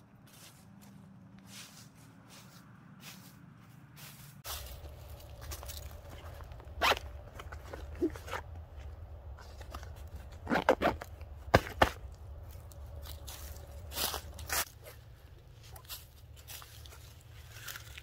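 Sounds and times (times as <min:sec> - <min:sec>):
low steady rumble: 0:00.0 - 0:18.0
backpack zipper zipping: 0:06.8 - 0:07.1, 0:10.4 - 0:11.1.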